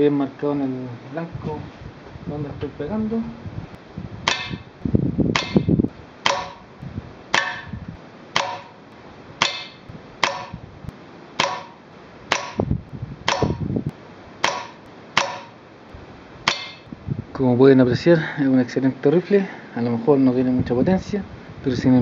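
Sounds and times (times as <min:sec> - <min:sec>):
low rumbling handling noise: 0:01.1 - 0:18.1
air rifle firing into metal trap: 0:09.4 - 0:10.6.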